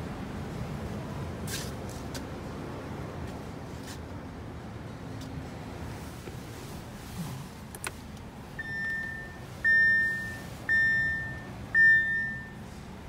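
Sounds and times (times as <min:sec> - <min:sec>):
high dashboard warning chime: 0:08.6 - 0:12.6.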